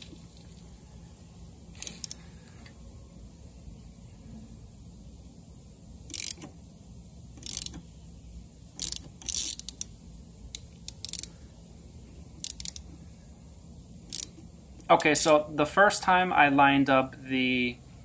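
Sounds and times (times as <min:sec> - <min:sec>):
socket ratchet clicking: 0:01.8 - 0:02.2, 0:06.1 - 0:06.5, 0:07.4 - 0:07.8, 0:08.7 - 0:11.3, 0:12.4 - 0:12.9, 0:14.1 - 0:14.4.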